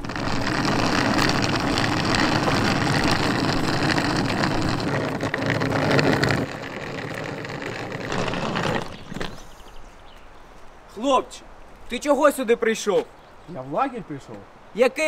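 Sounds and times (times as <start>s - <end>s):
suitcase wheels rolling on asphalt: 0.0s - 10.4s.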